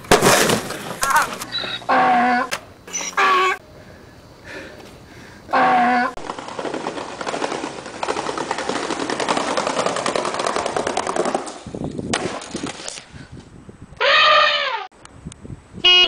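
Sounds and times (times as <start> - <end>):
skateboard popping crack: 0.0 - 1.5, 6.2 - 13.1
skateboard wheels rolling on concrete: 0.0 - 1.8, 6.1 - 13.8.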